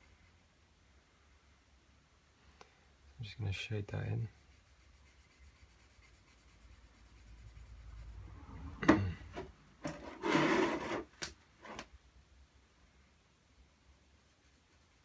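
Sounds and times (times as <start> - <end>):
scrapes against a hard surface: 8.6 - 11.9.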